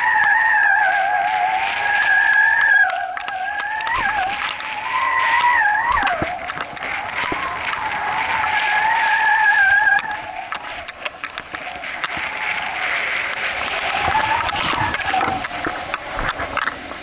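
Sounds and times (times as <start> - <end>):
wavering whistle: 0.0 - 10.4
wind rushing: 1.0 - 17.0.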